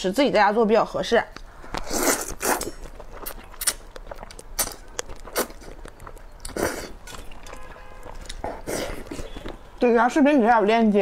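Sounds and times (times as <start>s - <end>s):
person slurping and chewing noodles: 1.7s - 9.5s.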